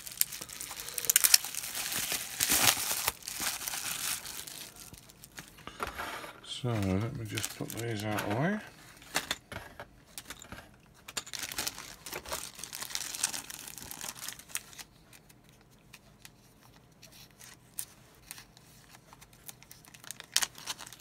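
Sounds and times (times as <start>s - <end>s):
plastic bag crinkling: 0.0s - 5.6s, 6.5s - 8.6s, 11.3s - 14.9s, 19.4s - 21.0s
plastic packaging rustling: 0.0s - 9.4s, 11.1s - 15.2s, 18.2s - 21.0s.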